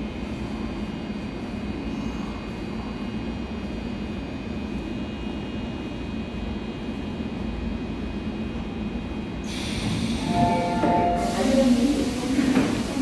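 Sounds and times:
electric train humming: 0:09.5 - 0:13.0.

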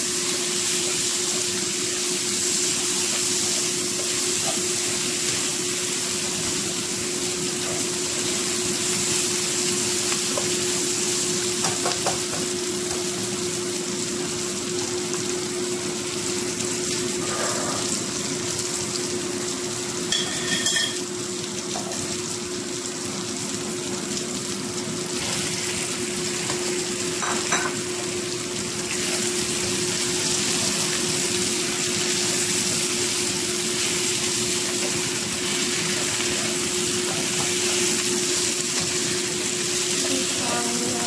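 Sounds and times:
food sizzling in a wok: 0:00.0 - 0:41.0
spatula knocking against pan: 0:11.6 - 0:12.5.

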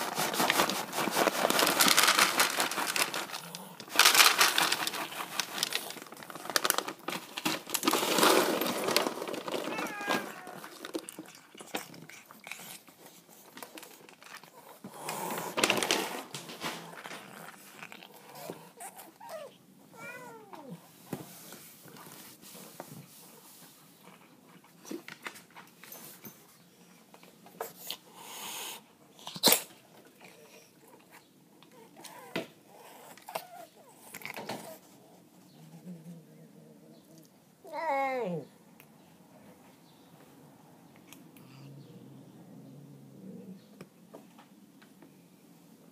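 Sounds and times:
small knocks and rustles: 0:00.2 - 0:12.1, 0:12.9 - 0:19.2, 0:20.5 - 0:27.8, 0:43.7 - 0:45.2
cat meowing: 0:09.6 - 0:10.8, 0:19.3 - 0:20.8, 0:37.6 - 0:38.5.

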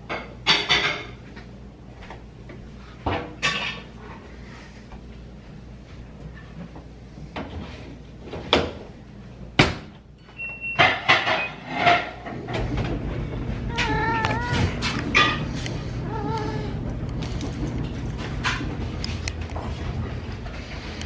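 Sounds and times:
washing machine humming: 0:00.0 - 0:21.0
cat meowing: 0:13.7 - 0:14.8.

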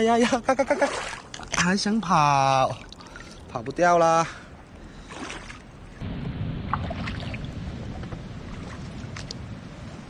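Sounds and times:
water sloshing around wading feet: 0:00.7 - 0:01.7, 0:02.7 - 0:03.8, 0:05.0 - 0:06.0.

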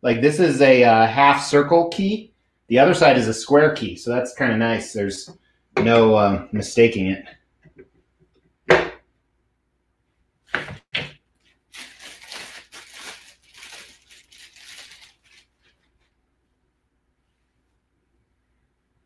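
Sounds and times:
plastic wrapping crinkling: 0:11.3 - 0:16.1.

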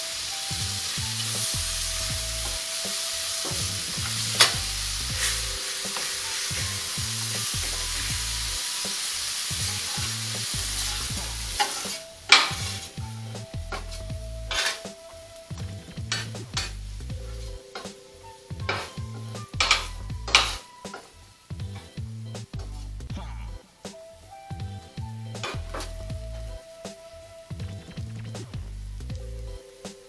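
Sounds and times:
vegetables sizzling on griddle: 0:00.0 - 0:13.0, 0:13.8 - 0:15.6
metal spatula stirring: 0:02.4 - 0:13.0, 0:13.7 - 0:21.0
spatula clacking on griddle: 0:02.9 - 0:04.6, 0:11.6 - 0:12.8, 0:13.7 - 0:14.9, 0:16.1 - 0:16.8.

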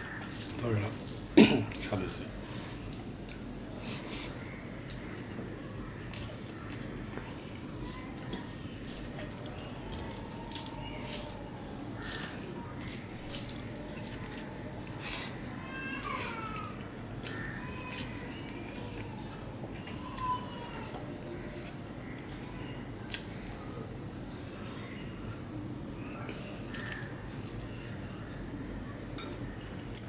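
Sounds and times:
fingers squishing rice and curry: 0:00.0 - 0:02.1, 0:02.7 - 0:30.0
chewing: 0:06.1 - 0:15.4.

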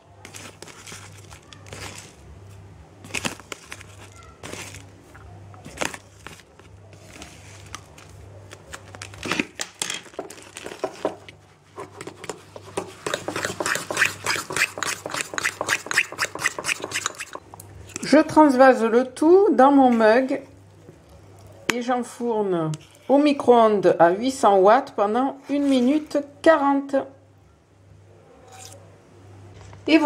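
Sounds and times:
fork beating batter in a bowl: 0:10.7 - 0:18.0.

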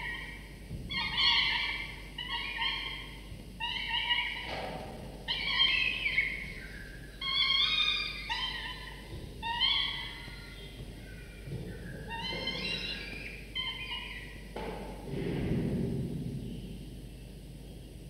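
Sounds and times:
falcon chicks wailing calls: 0:00.0 - 0:14.6.

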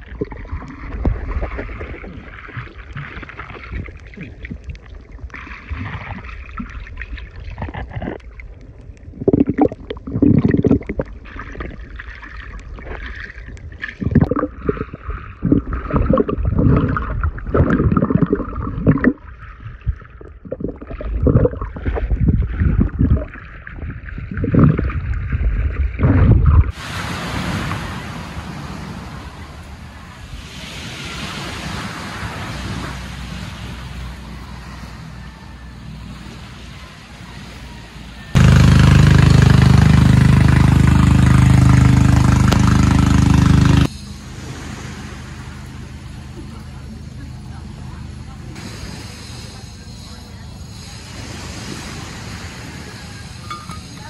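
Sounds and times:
muffled underwater water gurgling: 0:00.0 - 0:30.4
wind: 0:00.0 - 0:54.0
water rushing past: 0:25.7 - 0:54.0
surf hissing: 0:26.7 - 0:54.0.

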